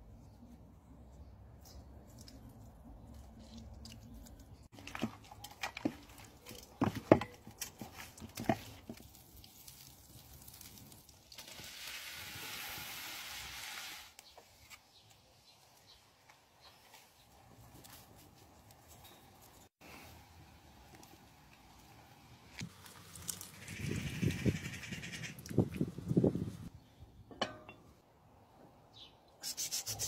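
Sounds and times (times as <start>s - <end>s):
shrimp sizzling in hot oil: 11.3s - 14.2s.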